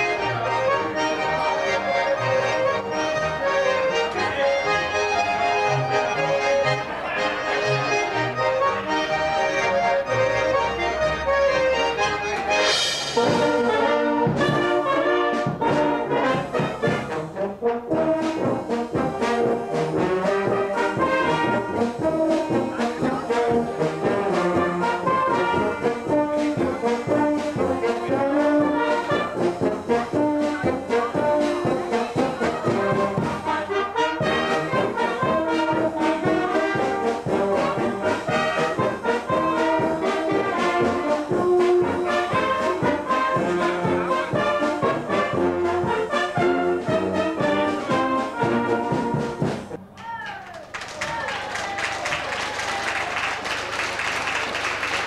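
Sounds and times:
accordion group with double bass: 0.0s - 49.8s
brass band playing: 0.0s - 49.8s.

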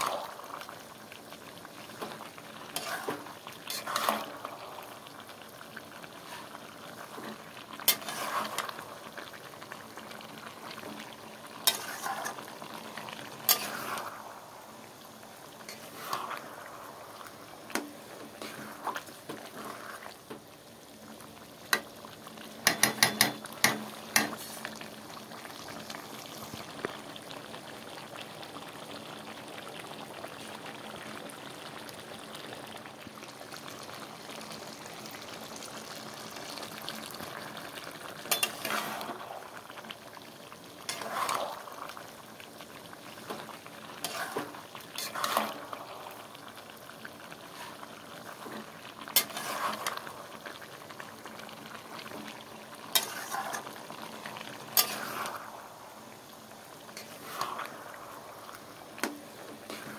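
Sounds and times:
curry simmering and sizzling: 0.0s - 59.9s
metal spatula scraping pan: 2.7s - 4.4s, 7.9s - 8.7s, 11.6s - 12.4s, 13.4s - 14.1s, 38.3s - 39.2s, 40.9s - 41.6s, 44.0s - 45.7s, 49.2s - 50.0s, 52.9s - 53.7s, 54.7s - 55.4s.

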